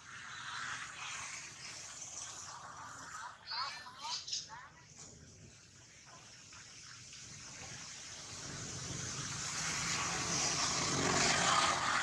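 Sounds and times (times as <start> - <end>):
vehicle passing: 7.4 - 12.0.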